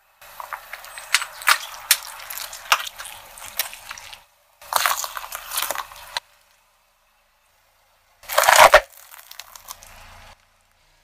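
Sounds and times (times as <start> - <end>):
plastic gloves crackling and popping: 0.2 - 6.5, 8.3 - 10.5
wet splatter: 0.3 - 6.2.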